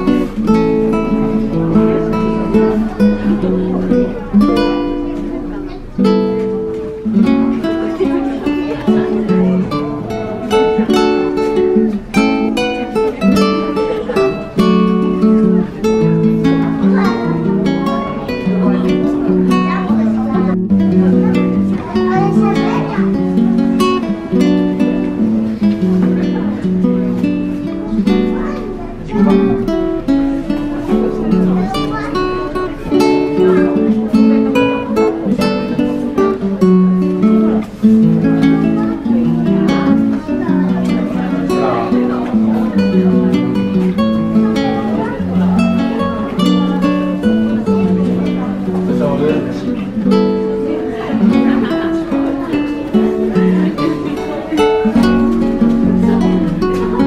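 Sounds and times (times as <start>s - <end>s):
acoustic guitar picking: 0.0s - 57.0s.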